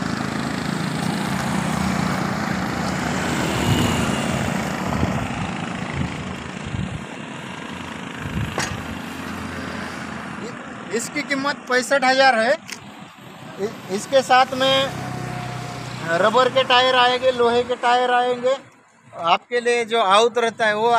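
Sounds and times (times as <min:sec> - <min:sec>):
small tractor engine running: 0:00.0 - 0:11.7.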